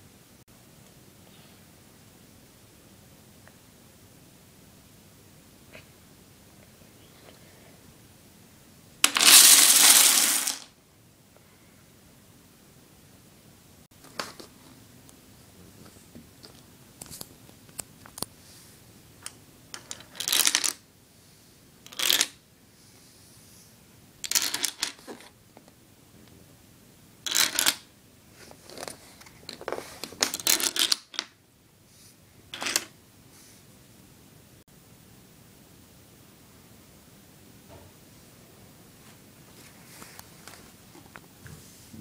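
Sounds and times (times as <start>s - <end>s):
dominoes clattering: 9.0s - 10.7s, 19.7s - 20.8s, 21.9s - 22.4s, 24.2s - 25.3s, 27.2s - 27.8s, 29.6s - 31.4s, 32.5s - 32.9s.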